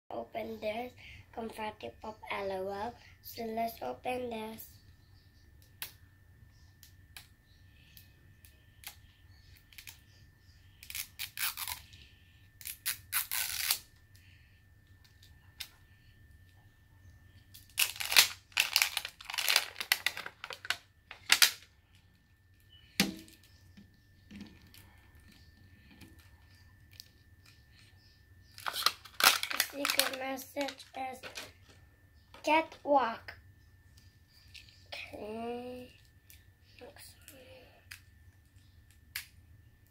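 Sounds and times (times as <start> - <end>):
wrapper tearing and crinkling: 10.8 - 11.9, 12.6 - 13.9, 17.6 - 21.7, 28.6 - 31.5.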